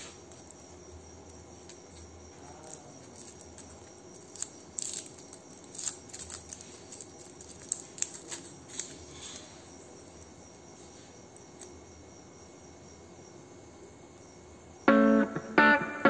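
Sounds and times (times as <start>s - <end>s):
foil cupcake liner crinkling: 0.3s - 10.4s.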